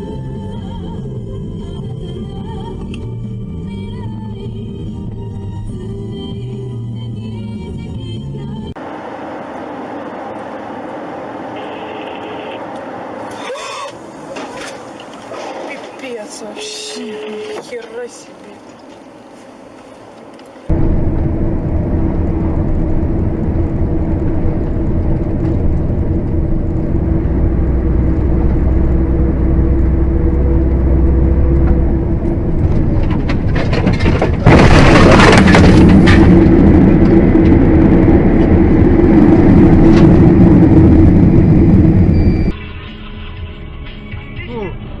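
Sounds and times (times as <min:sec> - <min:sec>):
vehicle engine and road drone: 0:00.0 - 0:45.0
loud crash: 0:32.7 - 0:42.6.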